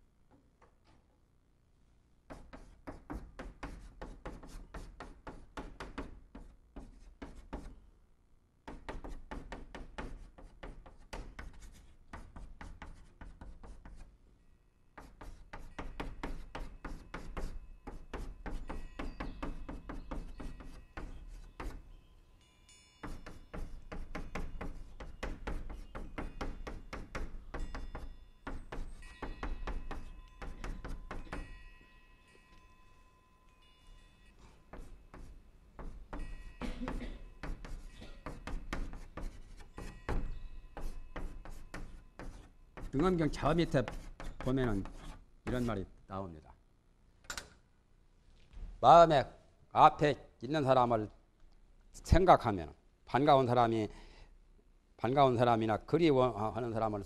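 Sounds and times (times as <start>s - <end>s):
chalk tapping and scraping on chalkboard: 2.3s - 7.8s, 8.6s - 14.1s, 15.0s - 21.9s, 23.0s - 31.5s, 34.4s - 45.9s.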